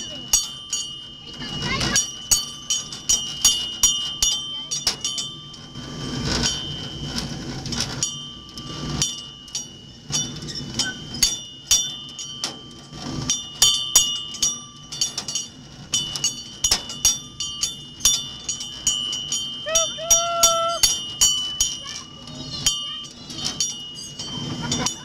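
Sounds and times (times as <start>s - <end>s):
miniature train rumbling on track: 0.0s - 25.0s
small brass bell ringing: 8.0s - 25.0s.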